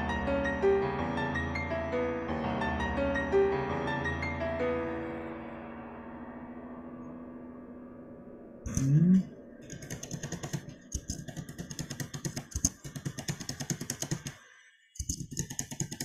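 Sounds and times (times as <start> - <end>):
piano notes: 0.0 - 9.4
person humming: 8.7 - 9.4
typing on computer keyboard: 9.6 - 14.4, 15.0 - 16.0.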